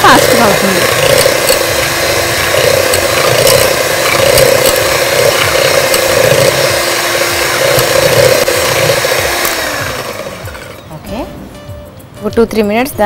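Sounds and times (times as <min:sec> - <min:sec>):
electric hand mixer running: 0:00.0 - 0:11.0
beaters ticking against bowl: 0:00.1 - 0:09.6.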